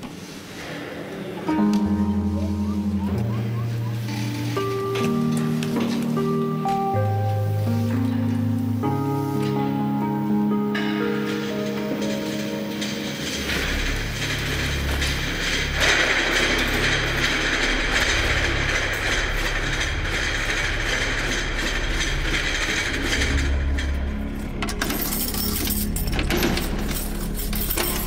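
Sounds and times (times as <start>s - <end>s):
mechanical clatter: 10.8s - 28.0s.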